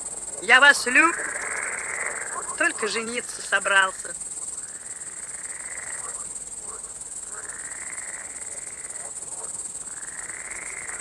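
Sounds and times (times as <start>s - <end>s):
grasshopper scraping phrases: 0.4s - 4.5s.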